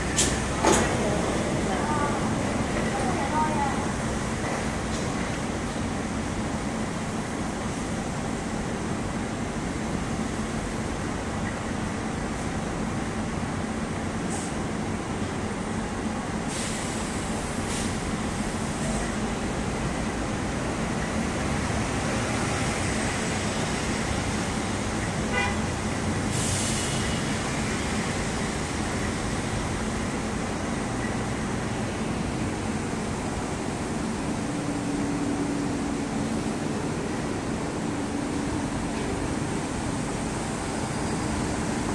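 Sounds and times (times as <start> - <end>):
train interior rumble and hum: 0.0 - 41.9
short air hisses: 14.3 - 14.6, 16.5 - 18.0, 26.3 - 27.2
train horn toot: 25.3 - 25.6.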